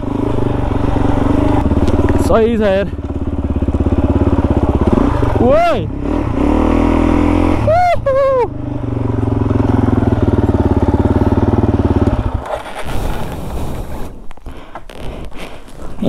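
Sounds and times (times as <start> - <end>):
dirt bike engine running: 0.0 - 16.0
high vocal cries: 7.6 - 8.5.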